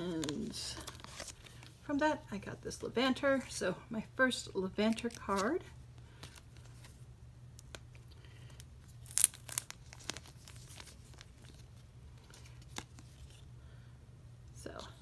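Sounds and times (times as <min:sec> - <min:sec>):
plastic packaging crinkling: 0:07.6 - 0:13.4.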